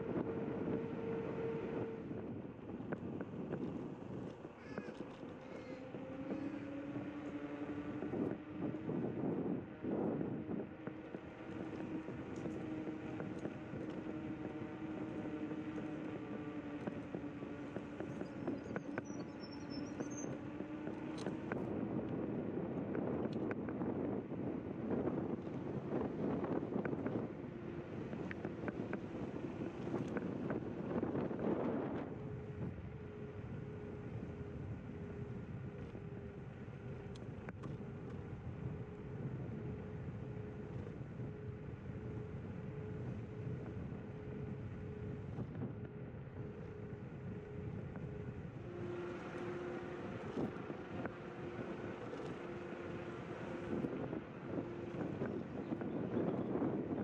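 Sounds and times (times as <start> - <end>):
electric scooter motor whining: 0.0 - 57.0
wind noise: 0.0 - 57.0
small clicks: 2.9 - 7.4, 10.8 - 22.2.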